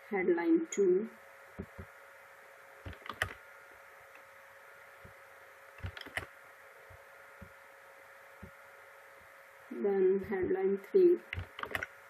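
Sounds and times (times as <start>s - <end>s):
faint steady hum: 0.0s - 12.0s
mouse and keyboard clicks: 2.8s - 3.4s, 5.8s - 6.3s, 11.4s - 11.9s.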